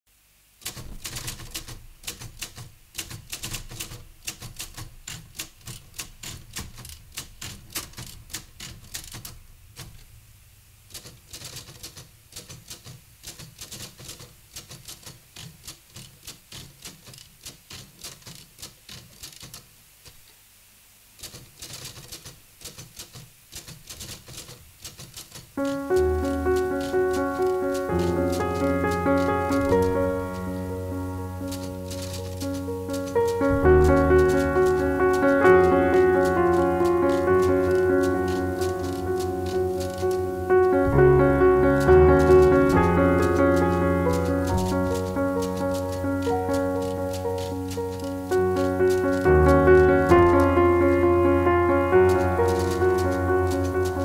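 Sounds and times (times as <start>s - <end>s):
typewriter keys clacking: 0.6s - 10.0s, 10.9s - 19.6s, 21.2s - 54.0s
loud sustained chords: 25.9s - 54.0s.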